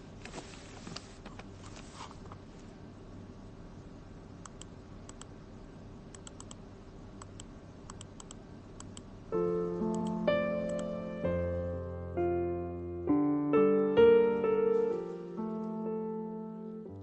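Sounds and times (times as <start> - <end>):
faint steady hum: 0.0 - 17.0
computer mouse clicks: 4.4 - 5.3, 6.1 - 6.6, 7.2 - 9.1.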